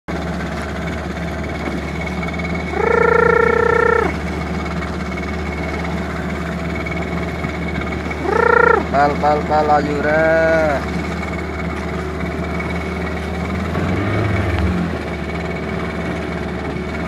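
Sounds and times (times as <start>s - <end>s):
boat engine running: 0.1s - 17.0s
person shouting a call: 2.7s - 4.2s, 8.2s - 10.8s.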